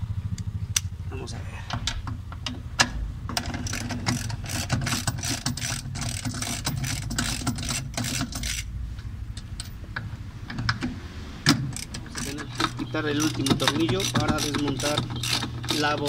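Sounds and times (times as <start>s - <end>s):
socket ratchet wrench clicking: 3.4s - 8.7s, 11.5s - 16.0s.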